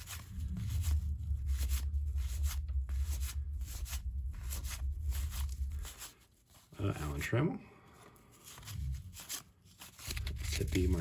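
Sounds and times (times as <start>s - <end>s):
low steady hum: 0.0s - 11.0s
cards sliding against each other: 8.3s - 11.0s.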